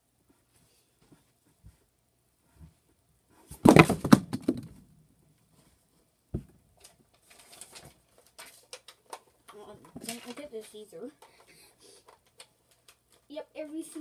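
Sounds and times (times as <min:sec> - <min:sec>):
soft rustling and shuffling: 0:00.0 - 0:03.6, 0:05.4 - 0:14.0
loud thumps and knocks: 0:03.6 - 0:04.7.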